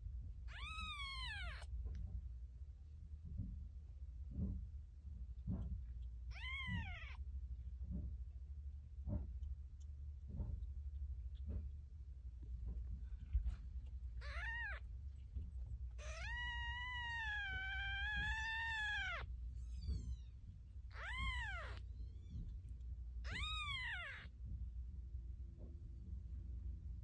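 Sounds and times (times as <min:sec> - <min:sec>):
kittens mewing: 0:00.5 - 0:01.7, 0:06.2 - 0:07.2, 0:13.2 - 0:20.3, 0:20.9 - 0:22.5, 0:23.2 - 0:24.3.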